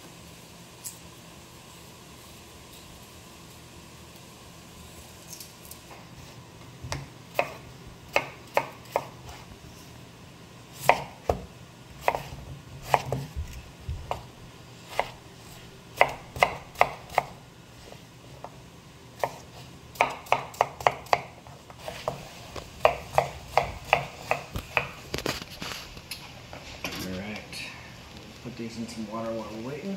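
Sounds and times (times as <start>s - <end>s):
knife chopping on cutting board: 6.9s - 9.4s, 10.8s - 13.4s, 14.9s - 15.2s, 16.0s - 17.4s, 19.2s - 25.0s.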